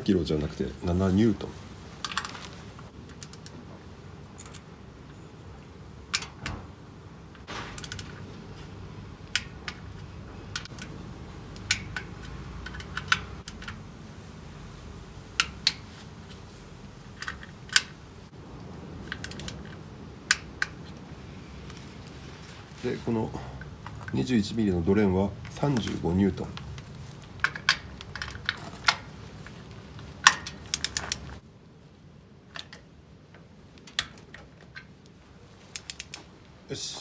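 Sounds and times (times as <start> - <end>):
wrench clicking on metal nuts: 7.8 - 8.2, 10.5 - 13.8, 30.2 - 31.3, 35.7 - 36.3.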